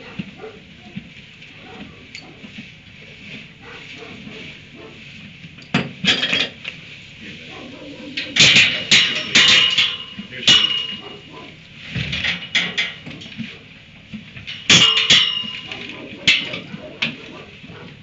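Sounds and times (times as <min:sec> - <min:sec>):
steel pipe panel clanking: 0:07.8 - 0:13.5, 0:14.3 - 0:17.3.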